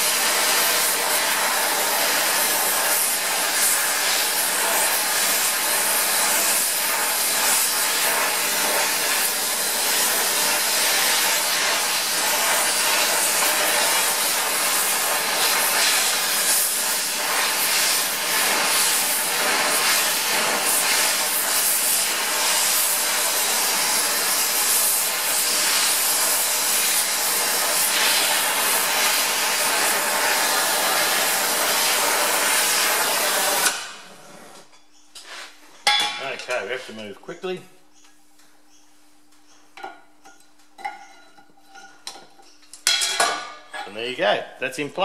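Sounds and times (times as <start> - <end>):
torch flame hissing: 0.0 - 34.6.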